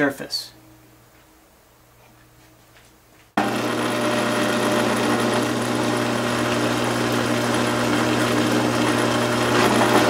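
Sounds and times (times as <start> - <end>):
drill press motor hum: 3.4 - 10.0.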